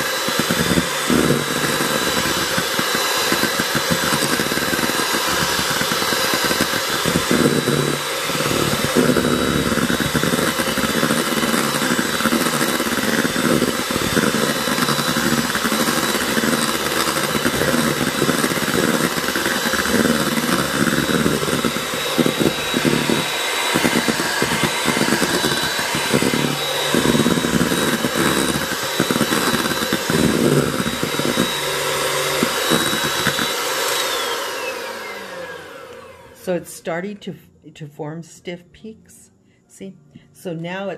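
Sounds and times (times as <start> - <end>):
electric hand mixer whining: 0.0 - 36.6.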